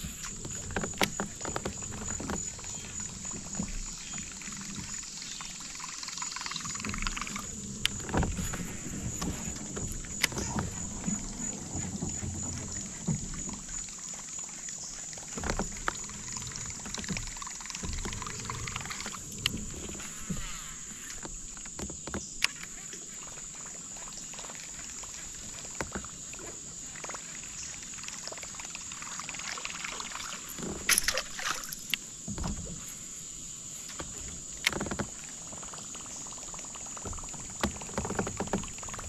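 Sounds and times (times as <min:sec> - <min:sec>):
knocks and clicks against hull: 0:00.0 - 0:39.0
water and boat noise: 0:00.0 - 0:39.0.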